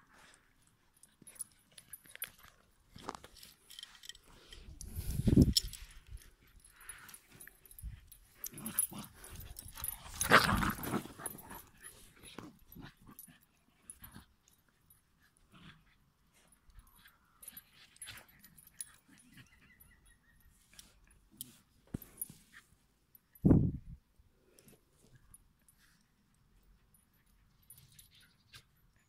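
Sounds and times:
dogs play-fighting: 5.4 - 23.3.

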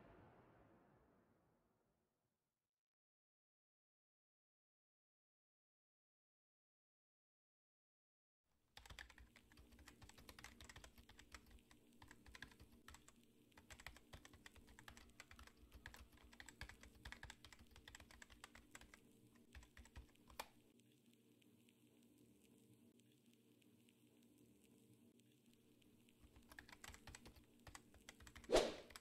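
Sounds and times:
keyboard typing clicks: 8.8 - 20.6, 25.4 - 29.0.

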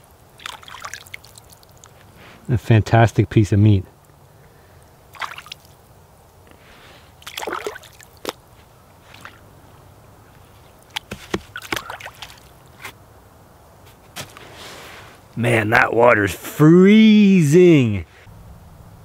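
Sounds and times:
water dripping: 0.0 - 2.1, 4.8 - 6.4, 7.2 - 8.4, 10.8 - 12.7
water sloshing and splashing: 0.3 - 2.1, 5.1 - 5.8, 7.2 - 9.5, 10.5 - 13.0.

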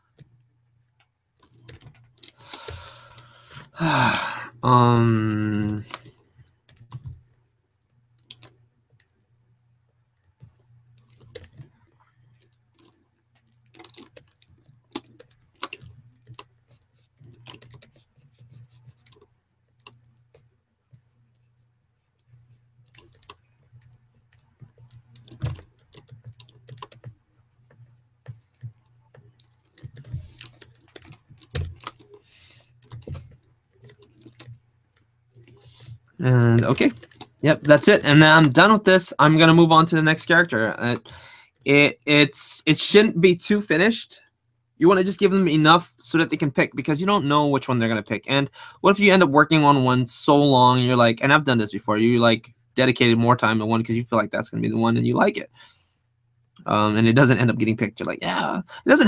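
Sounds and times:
faint low hum: 0.0 - 59.0
keyboard keys clicking: 12.5 - 16.5, 17.2 - 20.4, 22.8 - 34.6.

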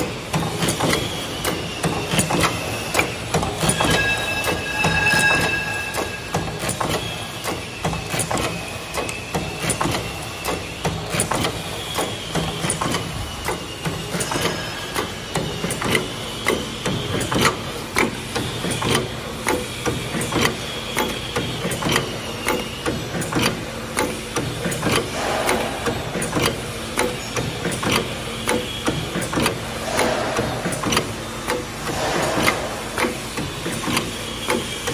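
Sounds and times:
low machine hum: 0.0 - 9.2
thin high whine: 3.7 - 7.4
machine clattering metal clicks: 6.0 - 34.9.

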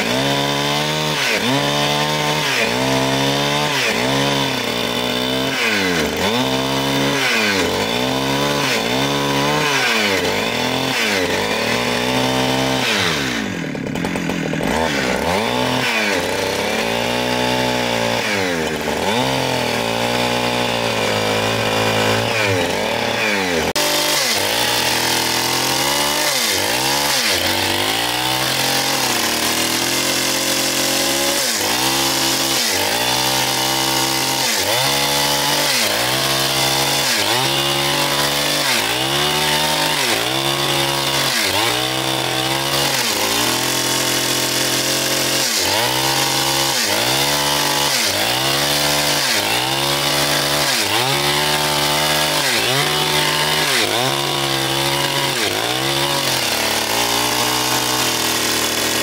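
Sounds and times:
chainsaw cutting log: 0.0 - 59.0.

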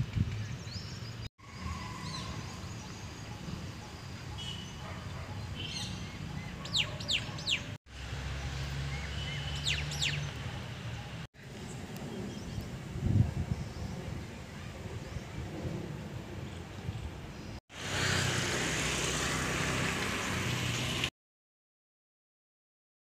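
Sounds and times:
wild birds chirping: 0.3 - 12.8.

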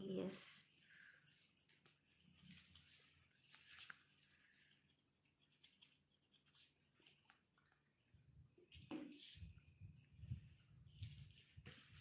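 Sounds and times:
scissors snipping fur: 0.0 - 6.7.

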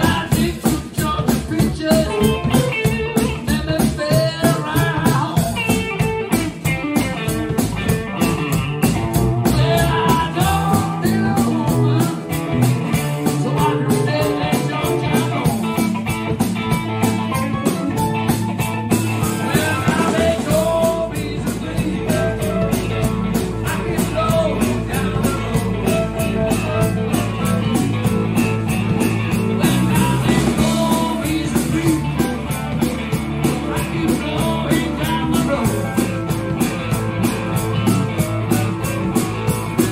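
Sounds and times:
person singing: 0.0 - 8.0, 9.4 - 16.0, 19.2 - 36.2
bass guitar: 0.0 - 39.9
drum kit: 0.0 - 39.9
electric guitar: 0.0 - 39.9.

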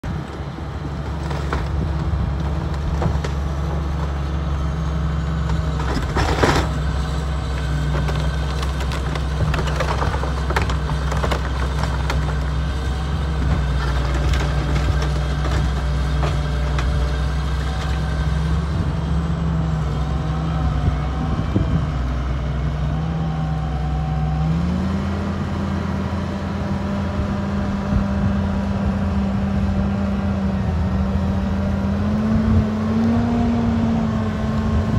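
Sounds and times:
excavator diesel engine running: 0.0 - 34.9
timber cracking and splintering: 0.3 - 4.4, 5.3 - 18.3.

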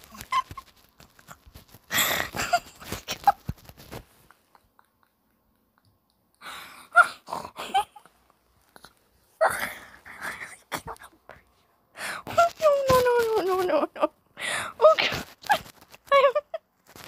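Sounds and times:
person laughing breathily: 1.9 - 3.5.

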